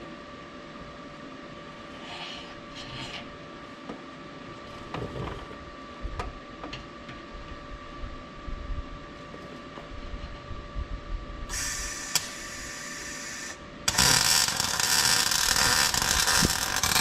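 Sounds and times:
steady hum: 0:00.0 - 0:17.0
welder crackling: 0:11.5 - 0:17.0.

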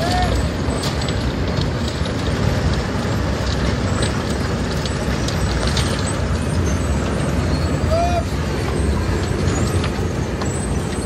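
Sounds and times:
falling chunks clicking and rattling: 0:00.0 - 0:07.8
asphalt pouring into truck body: 0:00.0 - 0:11.0
diesel engine running under load: 0:00.0 - 0:11.0.

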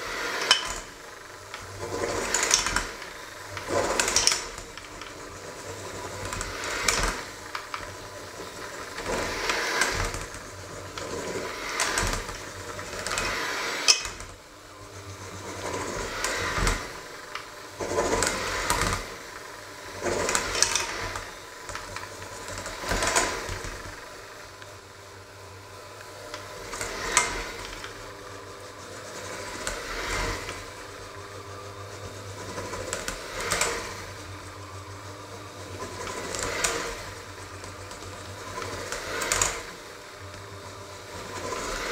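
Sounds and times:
electric mixer kneading dough: 0:00.0 - 0:41.9.

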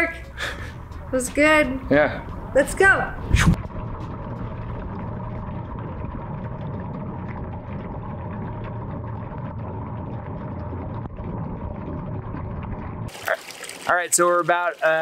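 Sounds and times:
small water splashes: 0:03.2 - 0:15.0
water rushing into metal sink: 0:12.4 - 0:15.0.

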